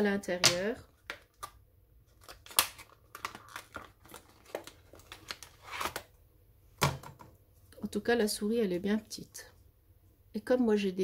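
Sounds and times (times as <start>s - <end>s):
plastic packaging crackling: 2.1s - 6.1s.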